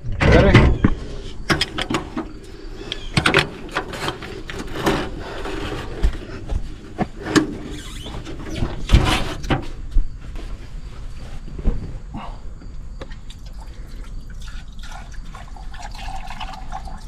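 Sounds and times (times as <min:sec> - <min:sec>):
dull thumps: 0:11.4 - 0:13.1.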